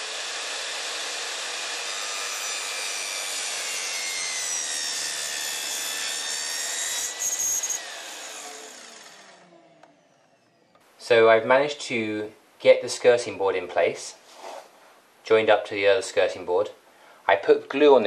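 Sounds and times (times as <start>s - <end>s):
mitre saw cutting wood: 0.0s - 10.7s
saw blade spinning down whine: 0.0s - 10.8s.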